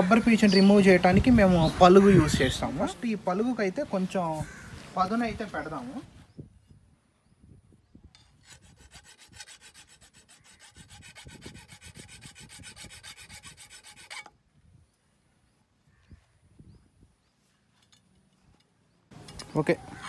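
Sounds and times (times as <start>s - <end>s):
metal rasping: 8.2s - 14.3s.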